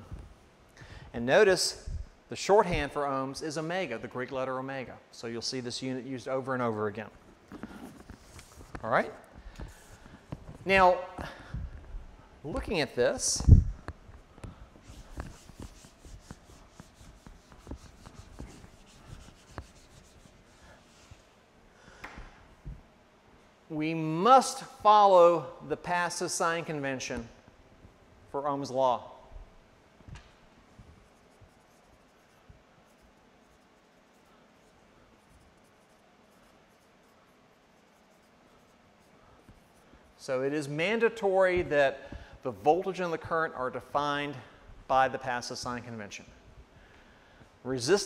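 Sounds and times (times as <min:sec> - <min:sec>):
eraser wiping whiteboard: 0:07.6 - 0:08.8, 0:09.6 - 0:10.2, 0:14.8 - 0:21.3, 0:30.9 - 0:40.2.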